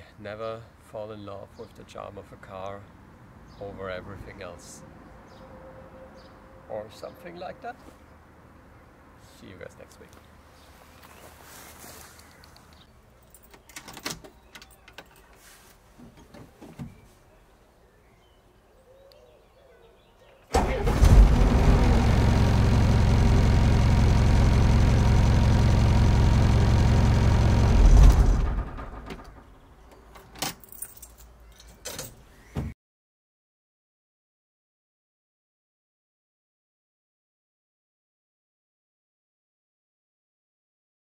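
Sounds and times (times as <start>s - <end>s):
keys jingling: 13.2s - 15.4s, 30.1s - 32.2s
diesel engine running: 20.6s - 29.5s.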